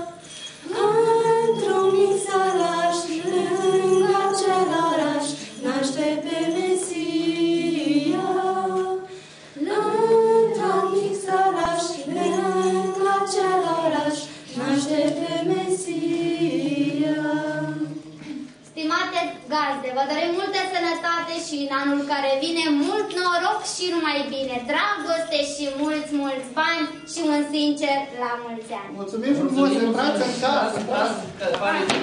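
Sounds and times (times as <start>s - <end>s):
women singing a cappella: 0.0s - 18.5s.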